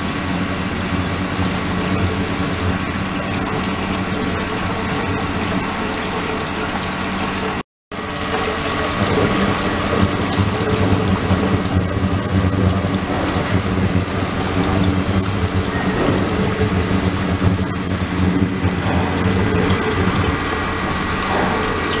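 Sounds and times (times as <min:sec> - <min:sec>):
thin high whine: 0:00.0 - 0:05.7, 0:09.0 - 0:20.4
pump humming: 0:00.0 - 0:22.0
water pouring and splashing: 0:00.0 - 0:22.0.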